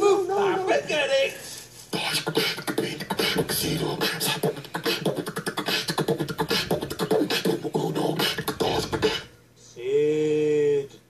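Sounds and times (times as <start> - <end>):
person beatboxing mouth clicks: 1.9 - 9.3.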